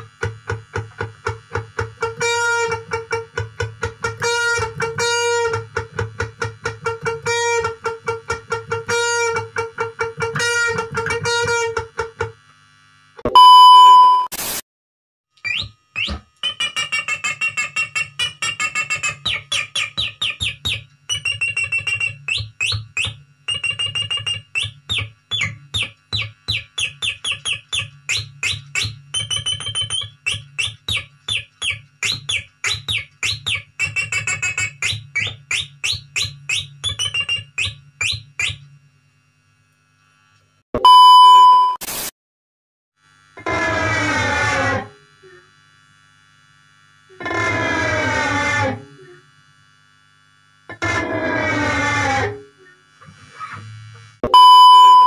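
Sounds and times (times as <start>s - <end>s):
short loud beep: 13.2s - 14.4s, 40.8s - 41.9s, 54.2s - 55.0s
electric guitar imitating birdsong: 15.4s - 23.1s, 23.7s - 38.6s
electric guitar imitating clucking: 16.0s - 23.2s.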